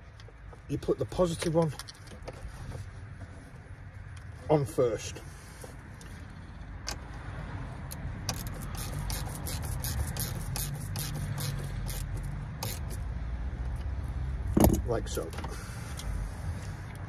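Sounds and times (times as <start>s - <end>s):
ratchet spanner clicking: 7.8s - 13.0s.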